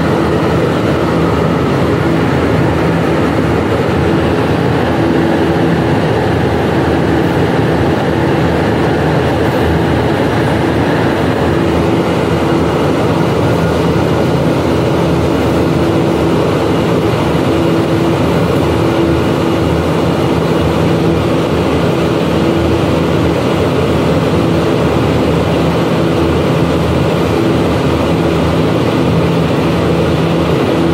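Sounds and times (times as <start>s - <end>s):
machine hum: 0.0s - 30.9s.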